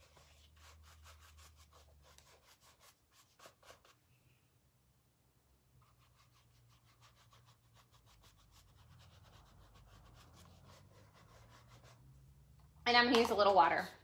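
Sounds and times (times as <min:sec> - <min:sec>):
paintbrush brushing on canvas: 0:00.0 - 0:04.0, 0:05.8 - 0:12.2.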